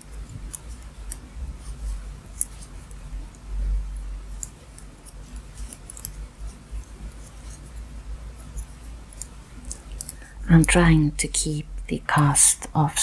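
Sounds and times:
knitting needles clicking: 0.1s - 1.7s, 2.3s - 3.5s, 4.3s - 7.6s, 8.4s - 11.2s.

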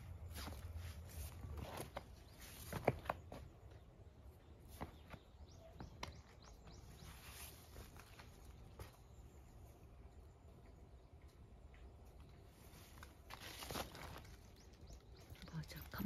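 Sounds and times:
bird chirping: 1.6s - 11.8s, 14.0s - 16.0s.

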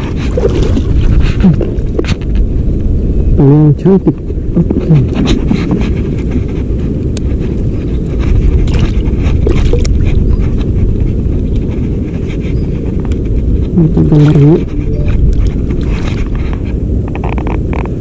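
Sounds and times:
person speaking: 13.7s - 15.3s.

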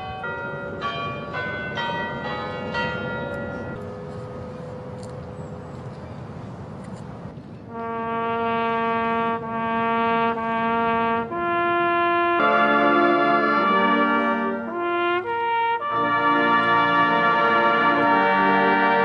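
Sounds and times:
low outdoor hush: 0.0s - 19.0s
brass band chords: 7.7s - 19.0s
horn holding long notes: 7.7s - 19.0s.

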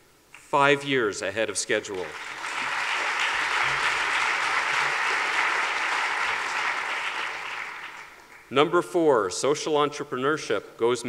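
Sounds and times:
audience applauding: 1.9s - 8.5s.

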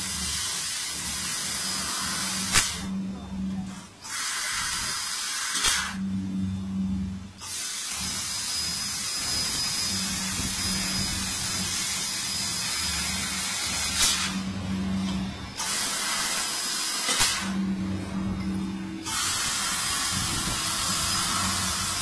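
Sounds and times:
hiss of gas jet: 0.0s - 2.9s, 4.0s - 6.0s, 7.4s - 14.4s, 15.6s - 17.6s, 19.0s - 22.0s
low machine hum: 0.0s - 5.2s, 5.8s - 22.0s.

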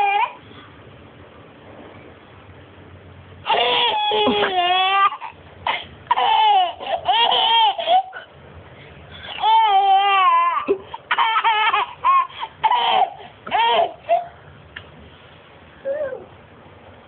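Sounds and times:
toddler laughing: 3.4s - 8.3s, 9.3s - 14.4s.

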